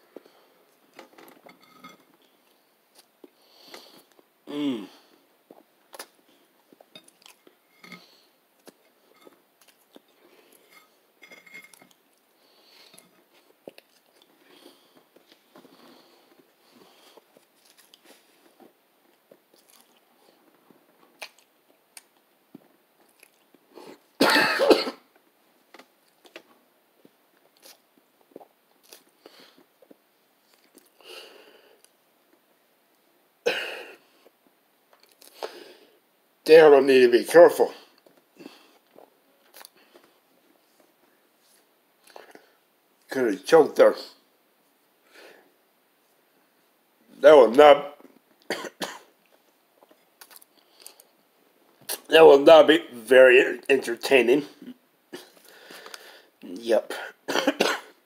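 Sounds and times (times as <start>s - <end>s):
man chewing food: 0.1s - 4.3s, 5.1s - 24.2s, 25.1s - 31.0s, 34.0s - 35.6s, 37.9s - 42.6s, 49.2s - 52.1s, 55.2s - 56.2s
man coughing loudly: 24.2s - 25.0s, 48.5s - 49.1s, 56.9s - 58.0s.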